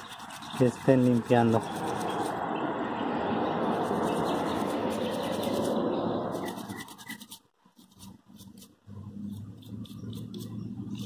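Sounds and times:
toothbrush scrubbing circuit board: 0.0s - 2.4s, 6.4s - 11.0s.

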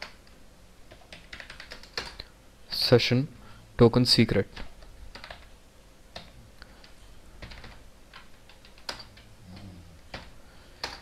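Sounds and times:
keyboard typing: 0.9s - 2.3s, 4.6s - 5.5s, 7.4s - 11.0s.

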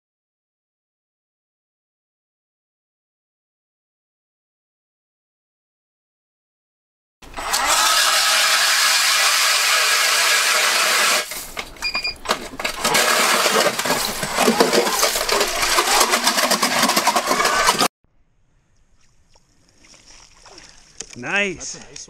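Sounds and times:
ice auger grinding whir: 7.2s - 11.6s, 12.2s - 17.9s
ice crackling: 12.3s - 17.9s.

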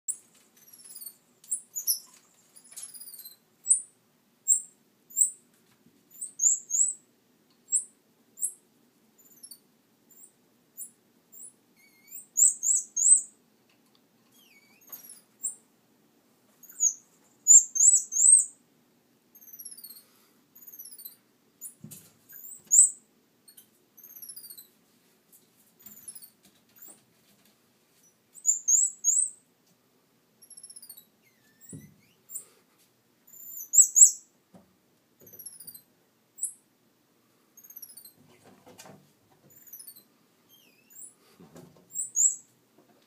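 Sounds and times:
small bird chirping: 0.1s - 5.4s, 6.1s - 13.4s, 14.3s - 15.7s, 16.6s - 18.6s, 19.3s - 24.8s, 25.8s - 27.0s, 28.0s - 29.4s, 30.4s - 32.5s, 33.2s - 34.4s, 35.2s - 36.7s, 37.6s - 38.2s, 39.5s - 41.2s, 41.9s - 42.5s.

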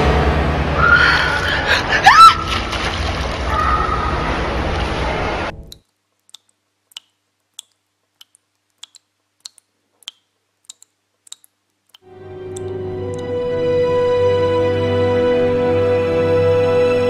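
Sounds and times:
splashing water: 2.0s - 12.8s
water drops dripping: 5.6s - 13.3s
music: 12.0s - 17.0s.

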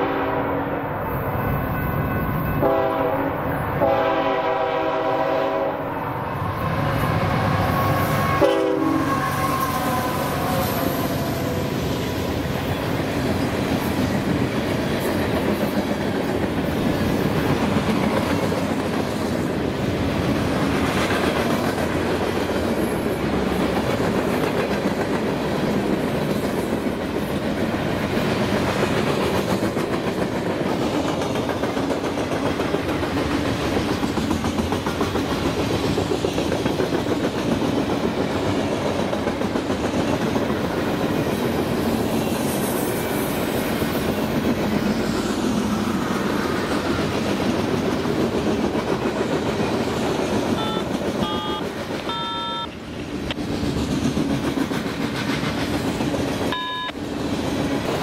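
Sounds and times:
locomotive air horn blasts: 0.0s - 0.7s, 2.6s - 5.9s, 7.6s - 11.3s, 50.6s - 52.8s
train wheels clattering over rails: 9.4s - 52.2s, 52.9s - 58.0s.

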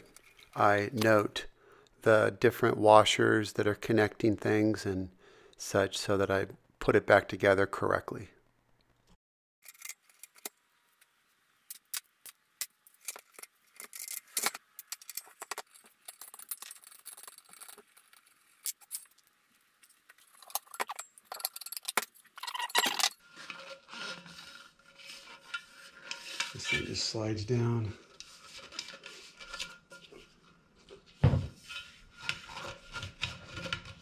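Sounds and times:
metal tube rubbing and scraping: 13.8s - 18.6s, 20.3s - 34.0s
metal parts clinking on wood: 20.3s - 23.2s.

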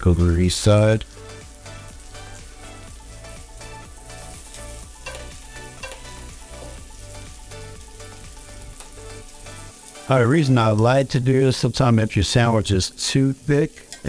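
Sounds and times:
meat sizzling in a frying pan: 0.0s - 14.0s
background music with beat: 1.0s - 10.5s.

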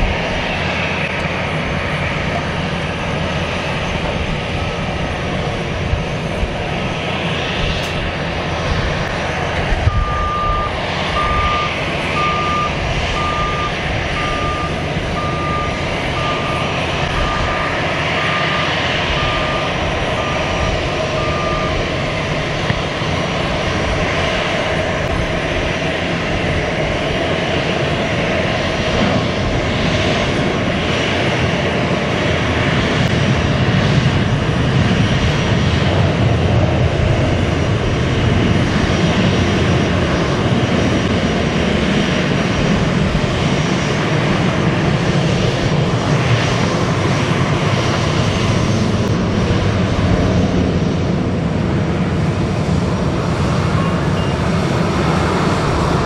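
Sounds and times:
jet engines taxiing: 0.0s - 56.0s
reversing alarm beeping: 9.9s - 21.9s, 53.7s - 54.5s.

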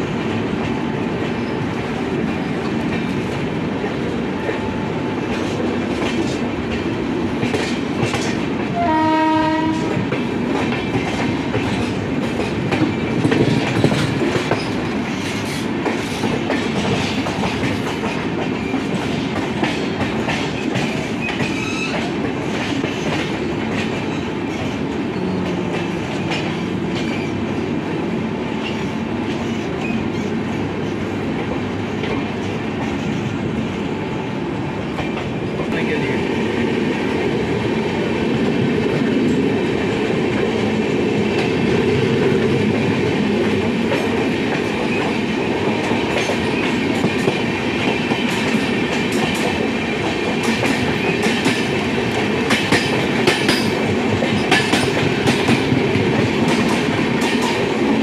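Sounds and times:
train wheels rumbling on rails: 0.0s - 58.0s
train horn: 8.7s - 10.0s.

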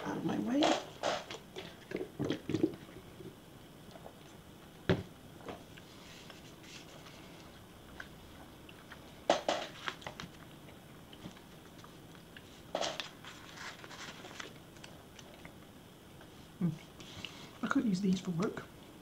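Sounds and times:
paper rustling: 9.5s - 10.4s, 12.7s - 14.6s.

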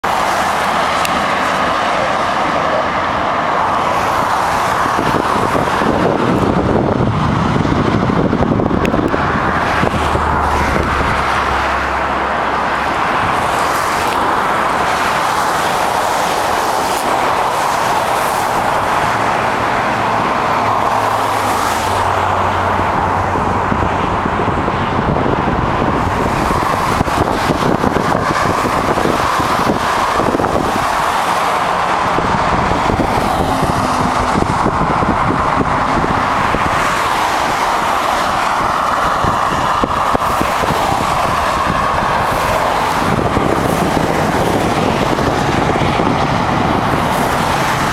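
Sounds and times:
traffic tyre noise: 0.0s - 47.9s
vehicles passing: 0.0s - 47.9s.

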